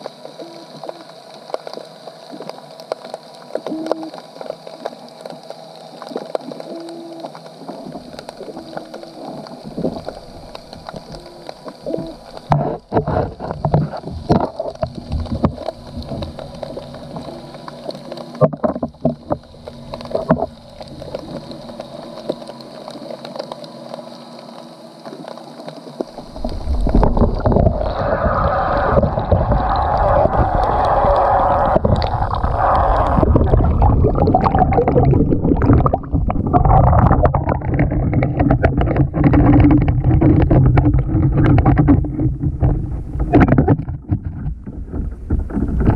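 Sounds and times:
muffled underwater clicks and knocks: 0:00.0 - 0:45.9
water rushing past camera: 0:26.0 - 0:45.9.

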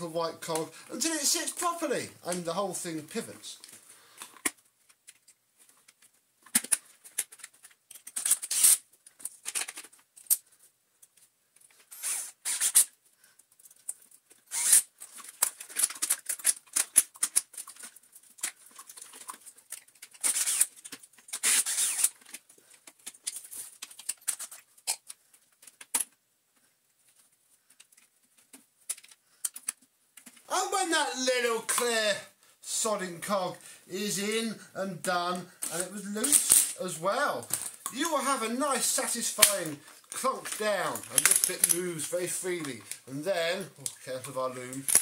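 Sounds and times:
plastic parts clicking and rattling: 0:03.0 - 0:30.5, 0:35.3 - 0:36.8, 0:37.4 - 0:43.2, 0:43.8 - 0:45.0.

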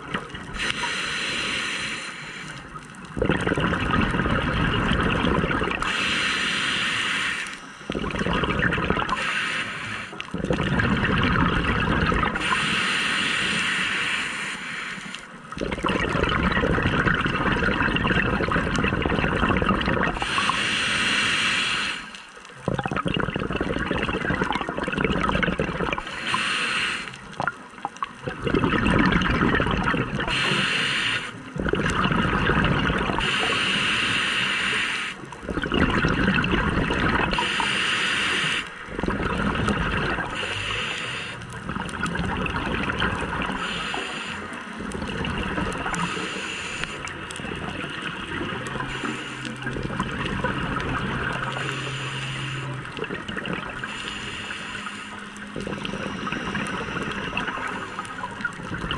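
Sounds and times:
bubbles gurgling: 0:00.0 - 0:01.0, 0:02.6 - 0:06.1, 0:07.8 - 0:09.4, 0:10.2 - 0:12.6, 0:15.4 - 0:20.6, 0:22.4 - 0:26.3, 0:27.2 - 0:34.0, 0:34.8 - 0:54.5, 0:55.2 - 0:58.9
low steady hum: 0:00.0 - 0:58.9
diver breathing through regulator: 0:00.6 - 0:02.9, 0:05.8 - 0:10.6, 0:12.3 - 0:15.4, 0:20.1 - 0:22.3, 0:25.5 - 0:27.4, 0:30.2 - 0:32.4, 0:33.0 - 0:35.6, 0:36.8 - 0:41.9, 0:43.2 - 0:47.8, 0:48.6 - 0:58.9.

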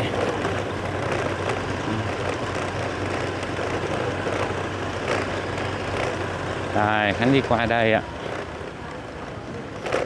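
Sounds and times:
road or wind noise: 0:00.0 - 0:10.0
vehicle engine humming: 0:00.0 - 0:10.0.

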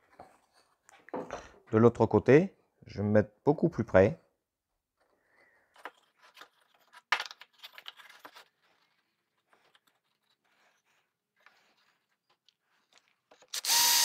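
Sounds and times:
wood pieces knocking and scraping: 0:05.8 - 0:08.6.

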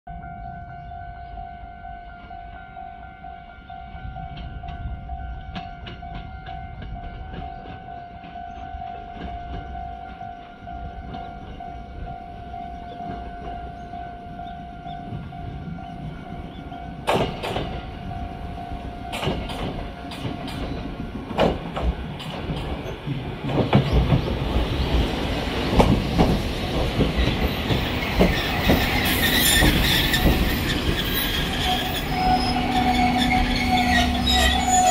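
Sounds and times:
electric train running: 0:05.5 - 0:34.9
wheels clacking over rail joints: 0:12.6 - 0:34.9
high brake squeal: 0:28.4 - 0:34.9.

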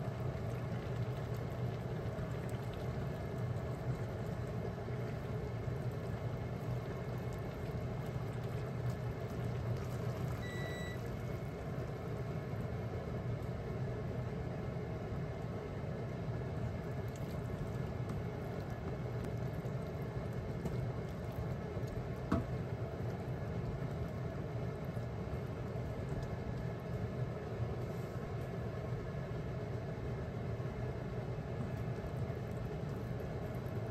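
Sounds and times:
sauce simmering in a wok: 0:00.0 - 0:33.9
steady low hum: 0:00.0 - 0:33.9
short electronic beep: 0:10.4 - 0:11.0.

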